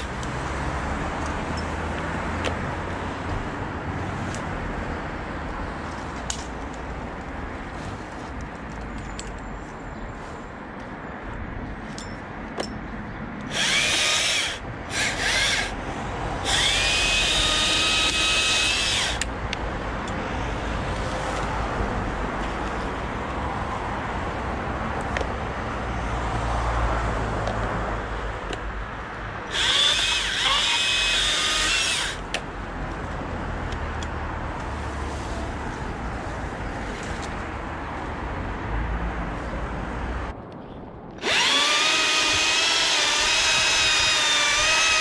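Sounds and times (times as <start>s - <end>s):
electric chainsaw whining: 13.5s - 15.8s, 16.4s - 19.3s, 29.5s - 32.2s, 41.2s - 45.0s.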